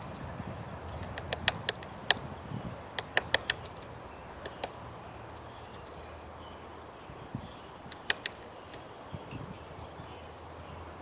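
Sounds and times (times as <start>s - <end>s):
bird pecking on wooden feeder: 0.9s - 2.3s, 2.9s - 4.8s, 7.9s - 8.8s.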